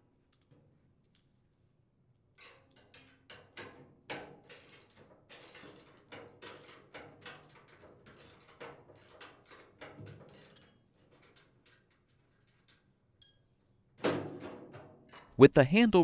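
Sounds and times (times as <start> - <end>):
wrench clinking on metal bolts: 4.4 - 13.7.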